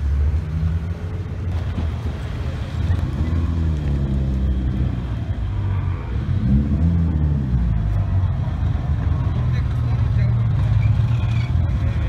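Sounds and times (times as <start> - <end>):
engine revving: 6.2 - 8.4.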